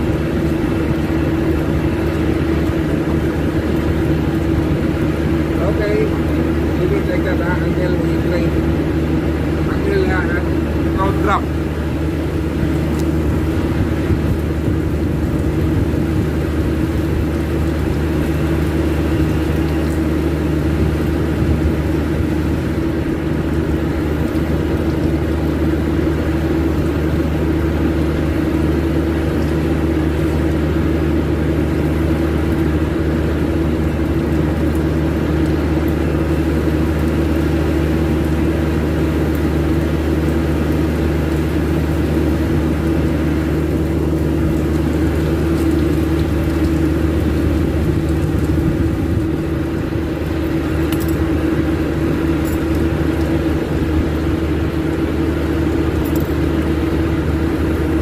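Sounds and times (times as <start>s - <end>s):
machinery drone: 0.0s - 58.0s.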